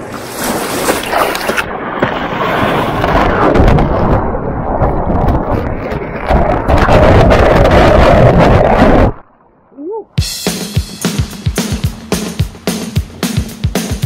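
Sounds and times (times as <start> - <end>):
surf rushing over camera: 0.7 - 9.3.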